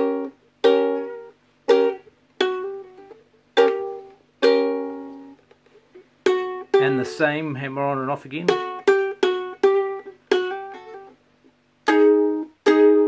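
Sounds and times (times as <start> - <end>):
ukulele plucked chords: 0.0 - 13.0.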